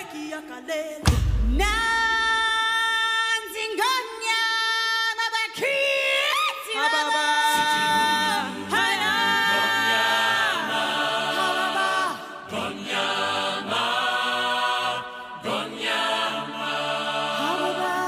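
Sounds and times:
voices singing unaccompanied: 5.6 - 18.0.

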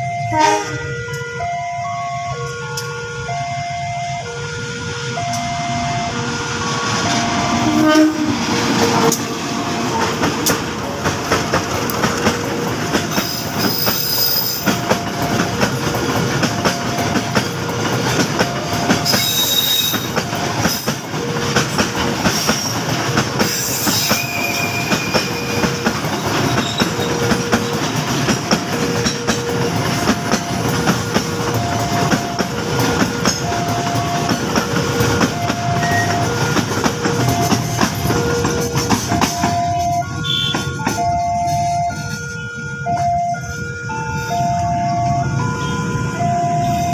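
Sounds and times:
two-tone electronic warning signal: 0.0 - 10.1, 12.6 - 46.9
diesel locomotive passing: 0.0 - 46.9
freight wagons clattering on rails: 8.6 - 42.4.

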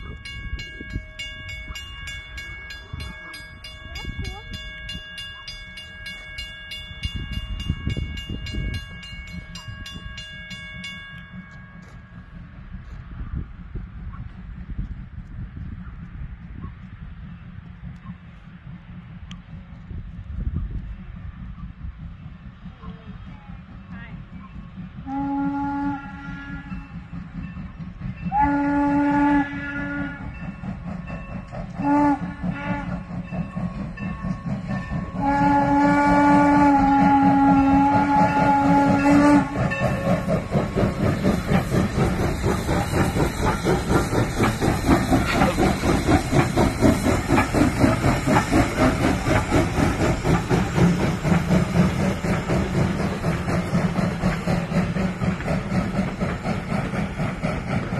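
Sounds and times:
crossing bell ringing rapidly: 0.0 - 12.6, 30.2 - 31.8, 32.9 - 35.7, 38.2 - 57.2
steam locomotive chuffing: 0.0 - 57.9
steam whistle blasts: 25.0 - 27.1, 28.3 - 30.4, 31.8 - 33.1, 35.2 - 40.3.

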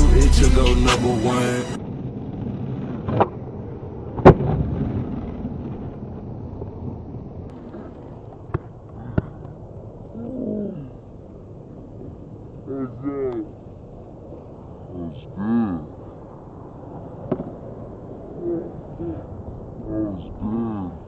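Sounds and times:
skateboard wheels rolling on asphalt: 1.8 - 10.2, 11.0 - 12.7, 13.5 - 14.9, 15.9 - 19.9.

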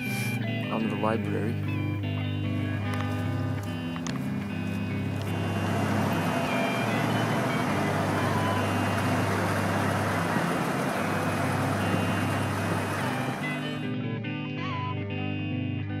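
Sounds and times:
low engine hum: 2.6 - 13.9
vehicles passing close by: 4.4 - 13.8.

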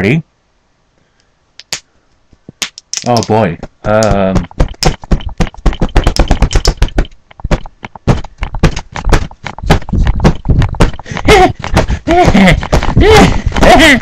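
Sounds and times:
microphone handling noise: 3.5 - 14.0.

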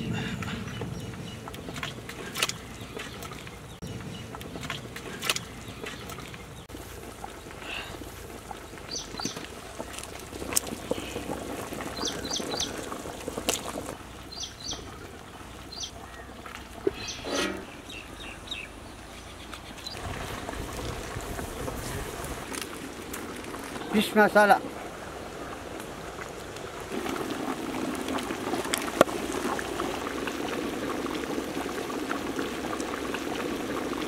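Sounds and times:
birds chirping: 0.0 - 6.7, 8.7 - 9.4, 10.8 - 20.0.

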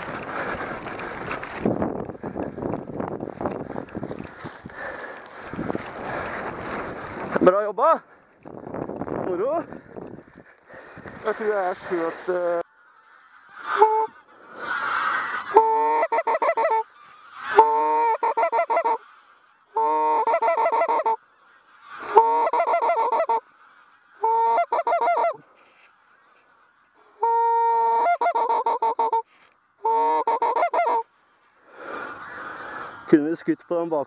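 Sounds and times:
geese honking: 10.3 - 34.0.

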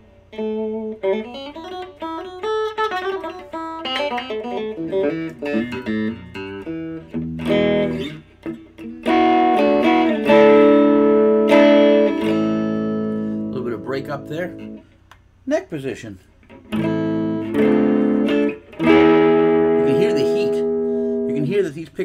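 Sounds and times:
electric guitar strummed chords: 0.0 - 14.8, 16.4 - 22.0
electric guitar single-note lines: 0.0 - 14.9, 16.5 - 21.8.

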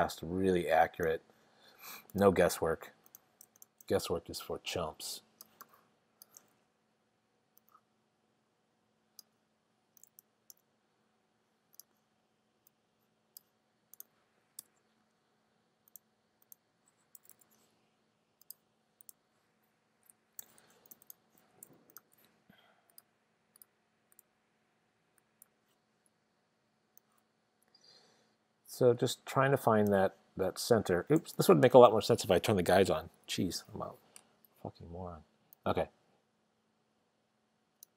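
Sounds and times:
computer mouse clicks: 3.0 - 3.9, 5.4 - 6.6, 7.6 - 7.9, 9.9 - 10.7, 11.7 - 12.0, 12.6 - 14.8, 15.8 - 17.7, 18.4 - 19.2, 20.0 - 22.3, 22.9 - 24.3.

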